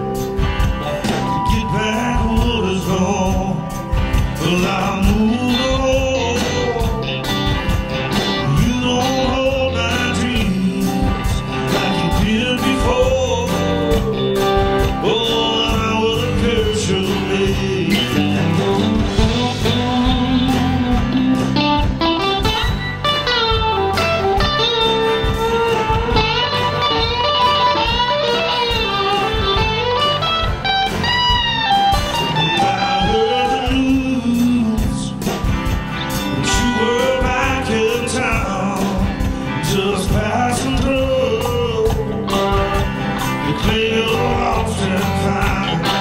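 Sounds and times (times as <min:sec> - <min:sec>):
bass guitar: 0:00.0 - 0:46.0
electric guitar: 0:00.0 - 0:46.0
steady drum beat: 0:00.0 - 0:46.0
strummed acoustic guitar: 0:00.0 - 0:46.0
man singing: 0:01.0 - 0:22.0, 0:32.0 - 0:46.0.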